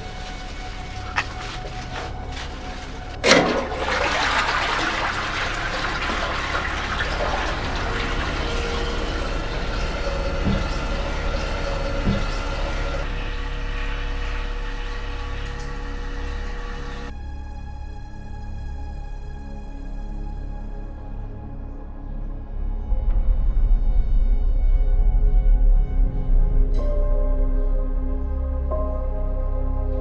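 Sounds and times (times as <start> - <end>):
toilet flush clunk: 0.0 - 17.1
water rushing: 0.0 - 17.1.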